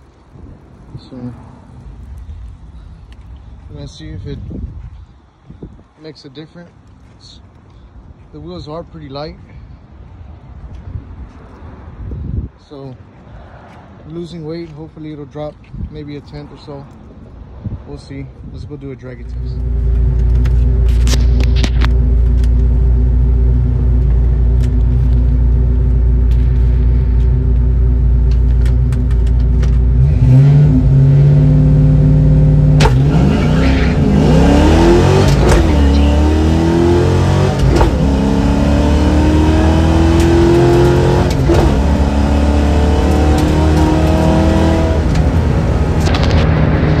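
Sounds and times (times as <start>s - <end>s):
car engine revving and accelerating: 19.5s - 47.0s.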